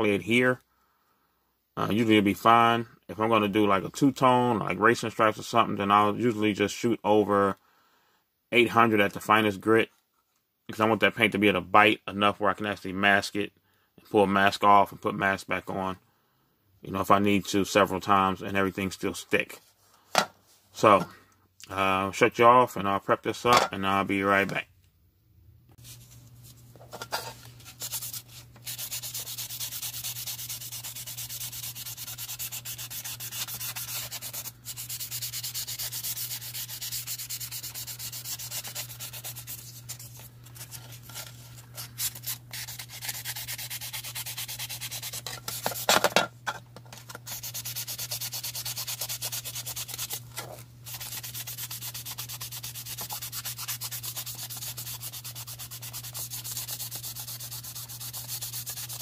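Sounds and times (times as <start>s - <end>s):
sanding sponge scuffing plastic: 27.6s - 46.0s, 47.1s - 50.2s, 50.9s - 59.0s.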